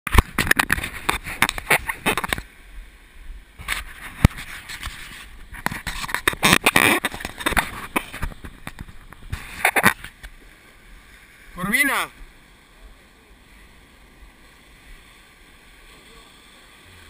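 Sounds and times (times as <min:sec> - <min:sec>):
camera handling knocks and scrapes: 0:00.1 - 0:02.5, 0:03.6 - 0:10.4.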